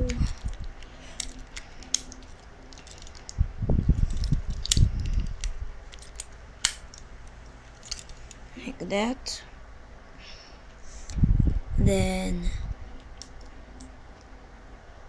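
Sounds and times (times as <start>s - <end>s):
plastic figure parts clicking: 1.2s - 3.3s, 4.0s - 7.0s.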